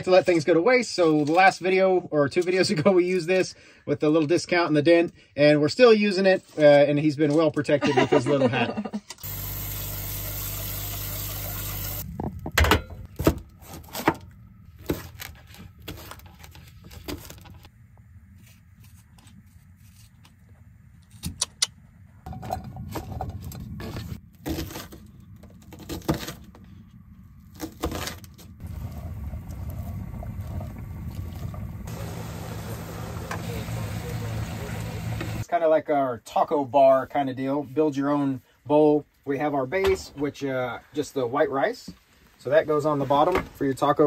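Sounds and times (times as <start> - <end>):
tap water running into saucepan: 9.2 - 12.0
vegetables sizzling in pot: 9.2 - 12.1, 31.8 - 35.4.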